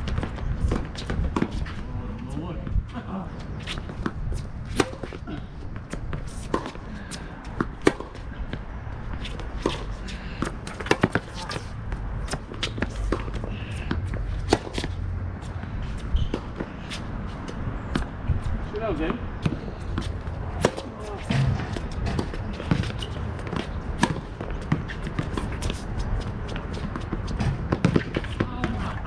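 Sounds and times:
tennis ball bouncing: 3.6 - 5.2, 5.8 - 18.1, 19.0 - 29.0
rackets striking tennis ball: 3.7 - 8.6, 9.2 - 15.0, 19.4 - 29.0.

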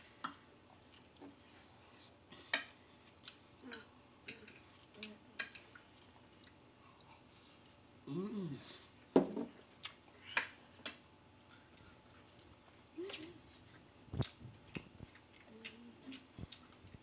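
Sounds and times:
chewing and lip smacks: 3.0 - 3.4, 9.8 - 17.0
person humming mm: 8.0 - 8.7.

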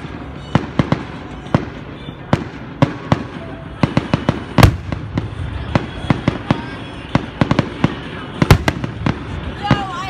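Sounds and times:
fireworks cracking and banging: 0.0 - 10.0.

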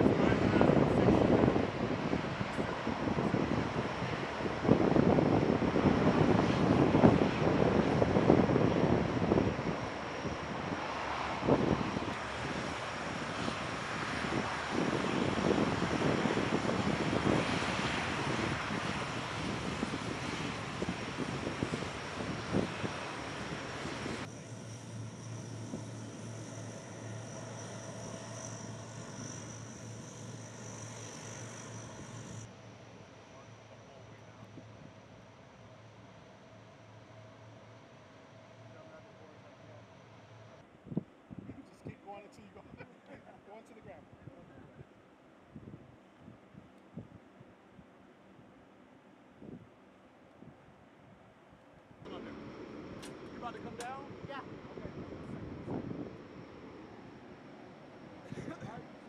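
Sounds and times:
turboprop aircraft taxiing: 0.0 - 40.6, 52.1 - 59.0.

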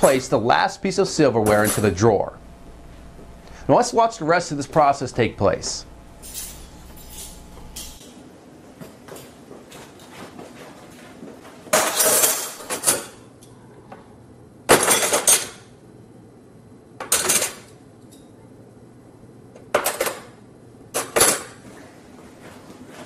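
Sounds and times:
metal silverware clattering: 1.4 - 2.0, 6.2 - 8.0, 11.8 - 13.2.

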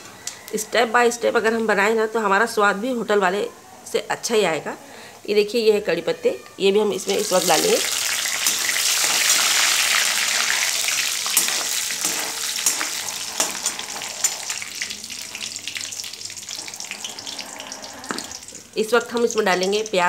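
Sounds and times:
leaves sizzling in hot oil: 6.9 - 20.0.

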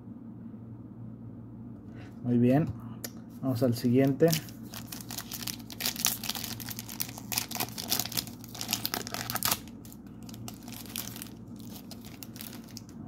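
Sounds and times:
cards rustling: 3.9 - 13.0
foil wrapper crinkling and tearing: 4.0 - 13.0.

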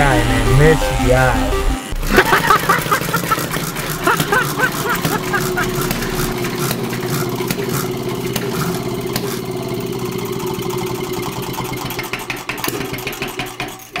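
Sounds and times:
small engine running: 0.0 - 14.0
sharp rattling clicks: 10.6 - 14.0.

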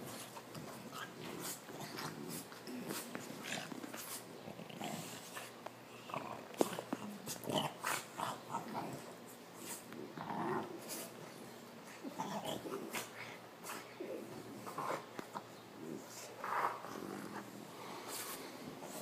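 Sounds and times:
dogs growling: 0.0 - 9.2, 10.0 - 10.9, 11.8 - 18.0
dogs snorting: 0.0 - 11.2.

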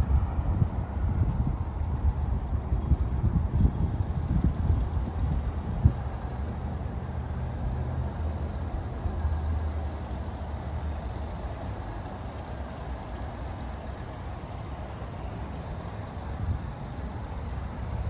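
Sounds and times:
wind buffeting microphone: 0.0 - 6.4
vehicle engine idling: 0.0 - 18.0.

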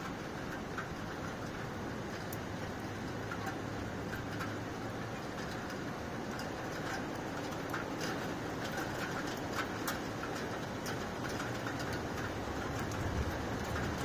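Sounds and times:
drops ticking on a surface: 0.0 - 14.0
rain falling: 0.0 - 14.0.

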